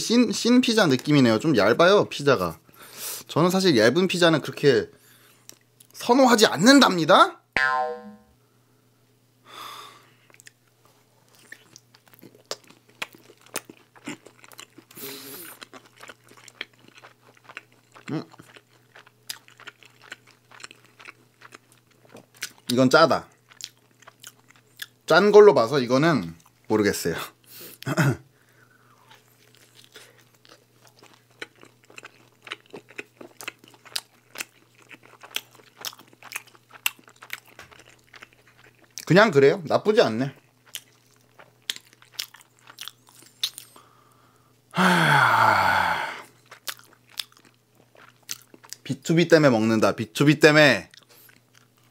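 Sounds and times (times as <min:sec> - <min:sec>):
crunchy pizza chewing: 0:11.3 - 0:25.0, 0:29.0 - 0:39.1, 0:40.2 - 0:43.8, 0:46.3 - 0:48.9.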